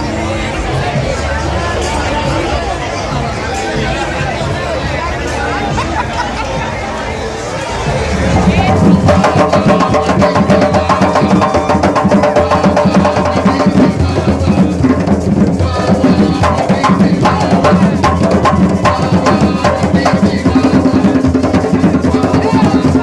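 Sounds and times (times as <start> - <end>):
hand drum beating fast: 7.9 - 23.0.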